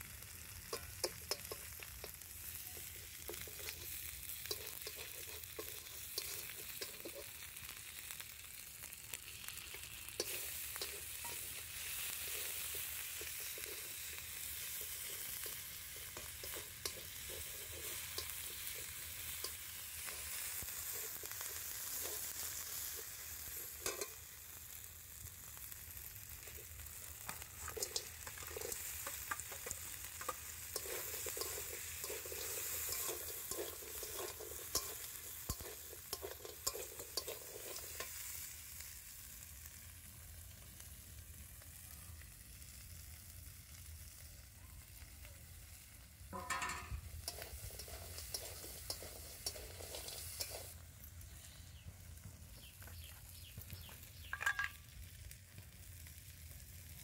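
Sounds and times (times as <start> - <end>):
food sizzling in oil: 0.0 - 57.0
metal spatula scraping pan: 3.2 - 7.4, 10.1 - 22.4, 23.6 - 24.2, 27.3 - 38.3, 46.4 - 50.8.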